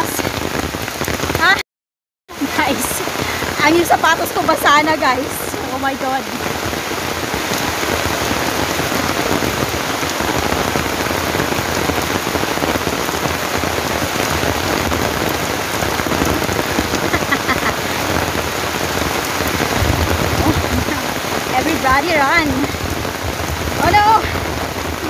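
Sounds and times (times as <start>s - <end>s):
heavy rain on leaves: 0.0s - 1.6s, 2.3s - 25.0s.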